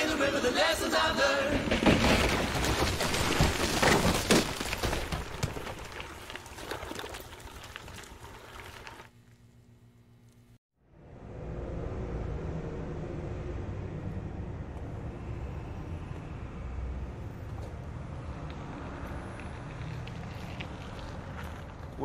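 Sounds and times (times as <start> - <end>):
bicycle rolling over gravel: 1.5 - 9.2, 19.7 - 22.0.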